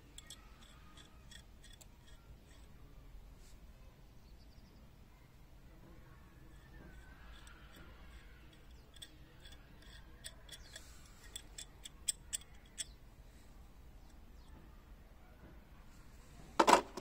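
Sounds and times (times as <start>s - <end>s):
wrench metallic clicks: 0.0s - 2.7s, 6.5s - 13.0s.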